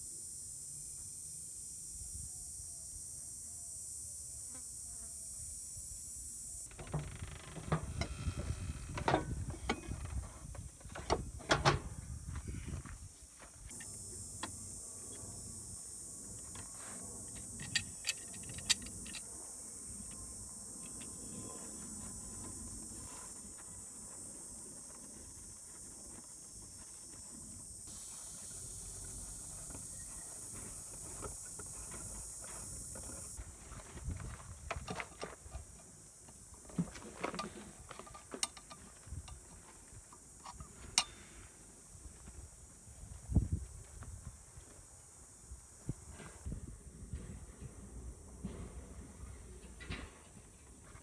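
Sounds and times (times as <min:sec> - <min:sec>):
steady high-pitched hiss: 0:00.0 - 0:51.0
metal clamp clicking: 0:17.6 - 0:19.2.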